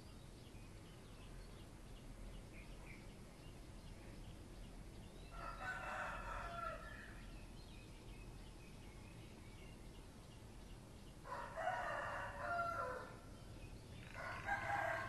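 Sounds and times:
rooster crowing: 5.3 - 7.1, 11.3 - 13.2, 14.1 - 15.0.

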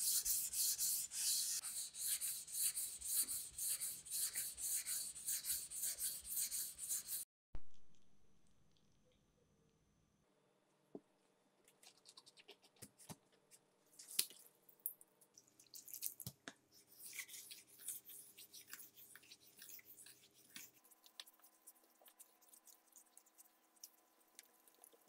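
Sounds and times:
knife scraping on wet whetstone: 0.0 - 7.2.

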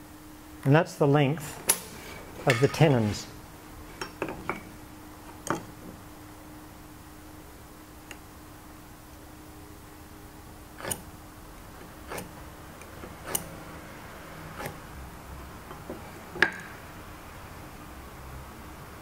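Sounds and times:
knife scoring wood clicks: 10.8 - 11.1, 12.1 - 13.6, 14.6 - 14.8.

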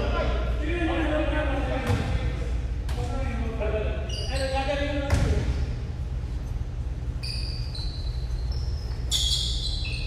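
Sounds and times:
low hum of hall: 0.0 - 10.0
sneaker squeaks: 4.0 - 5.8, 6.4 - 10.0.

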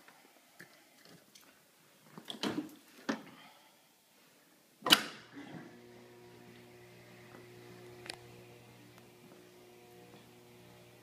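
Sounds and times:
steady low hum: 5.7 - 11.0.

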